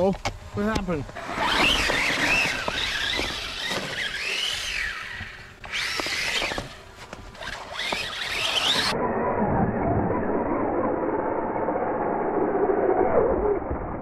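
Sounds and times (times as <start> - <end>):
rc truck electric motor whining: 1.2 - 13.4.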